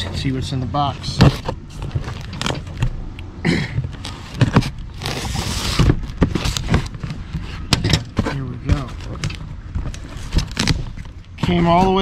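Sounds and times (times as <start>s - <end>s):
cardboard flaps and tape rustling: 0.0s - 3.0s, 3.8s - 12.0s
cardboard ripping: 4.0s - 9.2s, 9.9s - 11.0s.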